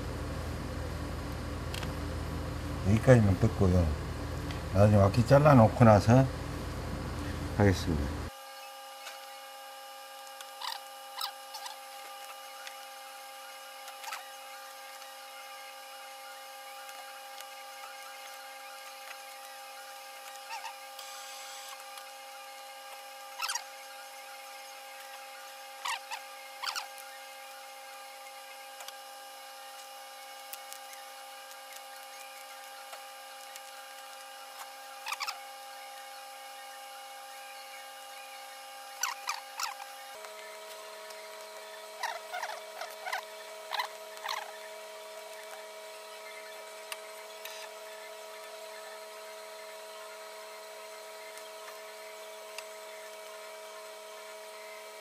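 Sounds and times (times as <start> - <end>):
electrical hum: 0.0 - 55.0.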